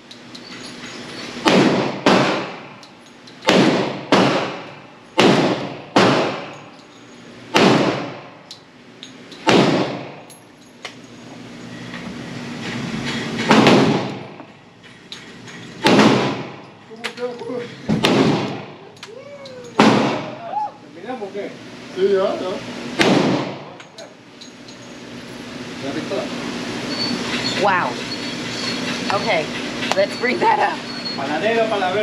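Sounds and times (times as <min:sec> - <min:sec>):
pistol shots echoing indoors: 0:01.4 - 0:02.6, 0:03.4 - 0:06.6, 0:07.5 - 0:08.2, 0:15.8 - 0:16.5.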